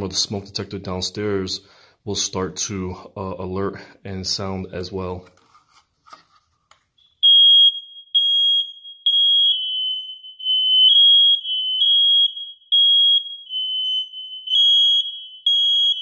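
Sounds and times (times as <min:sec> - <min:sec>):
lower-pitched second alarm: 0:07.0 - 0:16.0
smoke alarm high-pitched beeps: 0:07.0 - 0:16.0.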